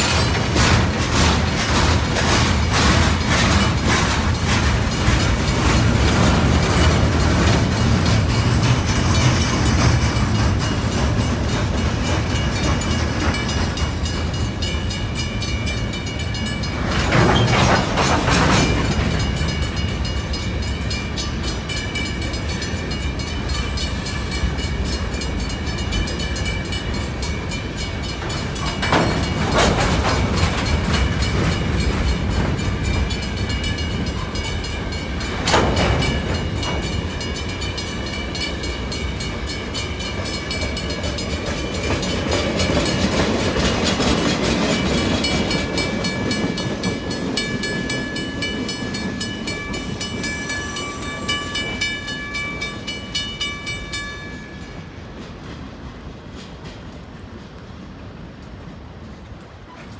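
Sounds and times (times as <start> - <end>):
wheel clatter over rails: 0.0 - 14.8, 15.5 - 19.8, 27.3 - 52.5
freight train rumbling past: 0.0 - 59.9.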